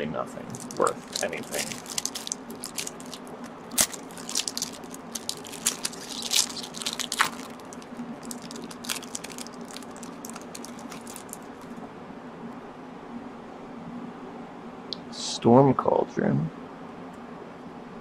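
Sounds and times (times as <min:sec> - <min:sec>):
foil wrapper crinkling: 0:00.4 - 0:11.8.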